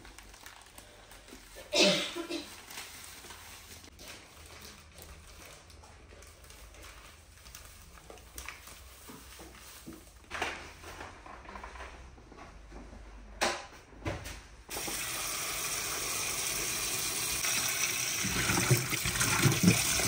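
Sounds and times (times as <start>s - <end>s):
plastic packet crinkling: 0.0s - 1.6s.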